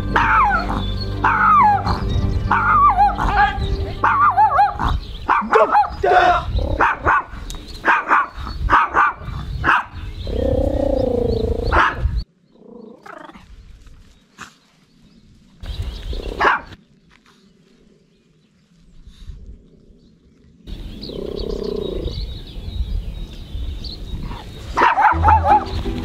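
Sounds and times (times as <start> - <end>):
dog growling: 0.2 - 3.6, 10.3 - 11.8
dog barking: 0.2 - 6.0, 6.8 - 10.0, 11.7 - 12.1, 16.4 - 16.8, 24.8 - 25.8.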